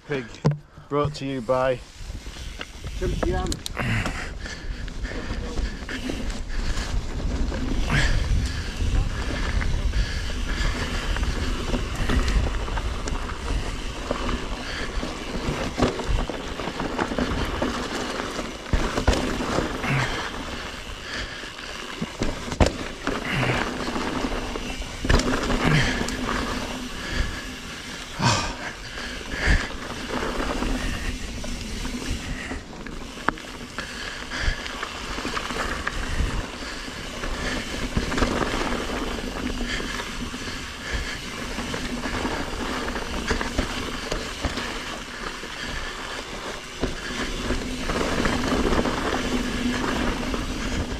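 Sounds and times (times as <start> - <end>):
tyres rolling over dirt and stones: 0.1 - 50.9
bike knocks and rattles: 0.4 - 1.7, 9.2 - 27.5
wind noise on microphone: 0.5 - 18.4, 35.2 - 44.4.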